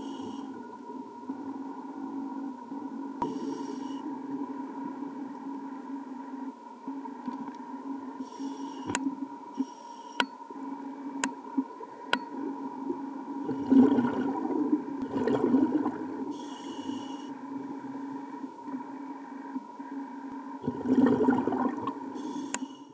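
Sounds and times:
steady underwater hum: 0.0s - 22.9s
regulator clicks and hisses: 8.2s - 10.3s, 22.2s - 22.9s
rush of exhaled bubbles: 13.4s - 16.3s, 20.6s - 22.1s.

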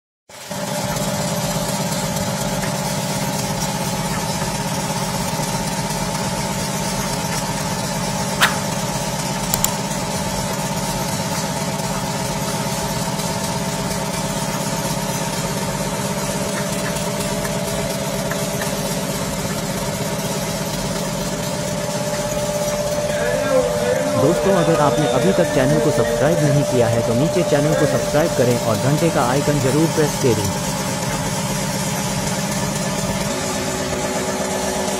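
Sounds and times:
compressor humming: 0.4s - 34.9s
sharp click: 8.4s - 8.7s, 9.5s - 9.8s.

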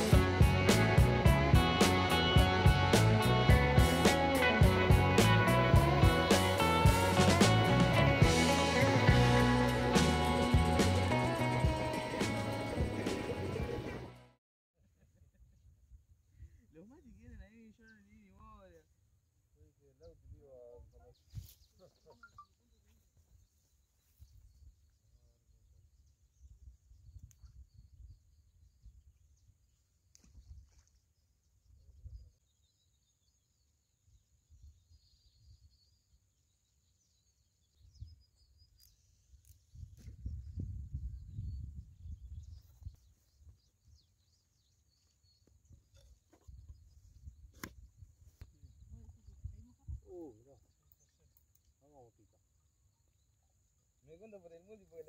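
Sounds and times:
faint bird chirps: 19.6s - 54.9s.

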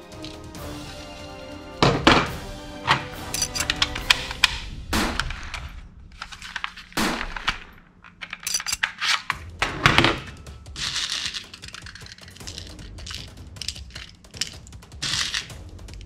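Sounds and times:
pellets rattling in a tin: 0.1s - 0.5s, 3.3s - 4.2s, 6.2s - 9.4s, 10.2s - 16.0s
plastic toy pistol clacking: 3.2s - 4.6s, 10.8s - 16.0s.

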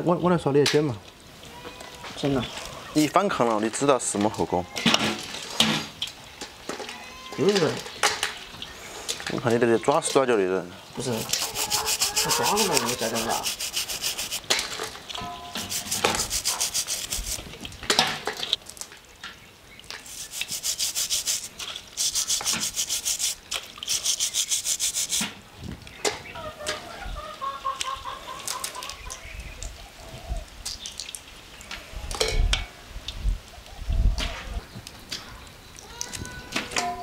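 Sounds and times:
brush scrubbing crayfish shell: 11.0s - 14.5s, 15.6s - 17.6s, 20.0s - 25.3s.

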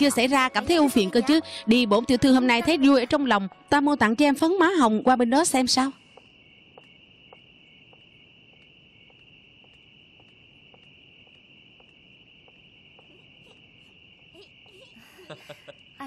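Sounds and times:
crickets chirring: 0.0s - 16.0s
faint ticks: 6.0s - 15.0s.

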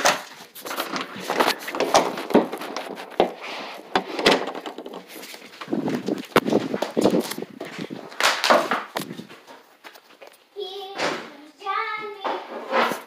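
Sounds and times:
phone rustling against fabric: 0.3s - 8.2s.

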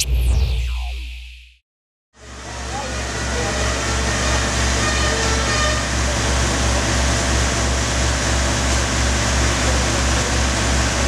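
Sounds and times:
fire engine rumbling: 2.2s - 11.0s.

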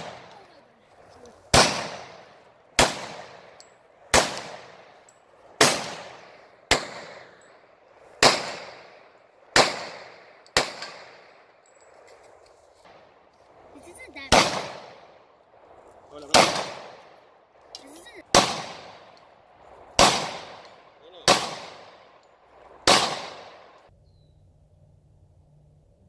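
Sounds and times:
pistol shots with echo: 0.0s - 0.5s, 1.4s - 11.6s, 14.2s - 15.3s, 16.2s - 23.9s.

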